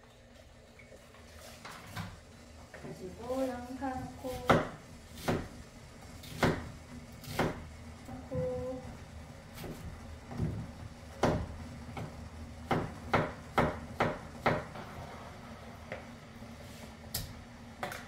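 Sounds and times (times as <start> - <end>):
knife chopping on wooden board: 4.3 - 5.5, 6.2 - 7.6, 11.2 - 14.7.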